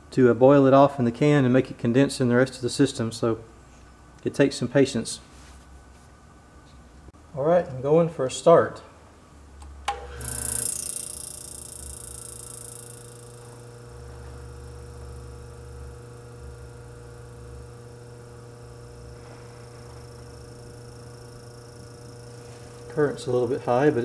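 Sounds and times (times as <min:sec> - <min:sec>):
refrigerator compressor humming: 0:07.2 - 0:24.0.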